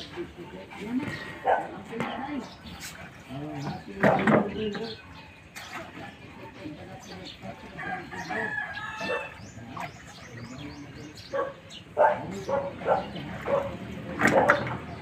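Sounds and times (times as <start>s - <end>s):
rooster crowing: 7.8s - 9.4s.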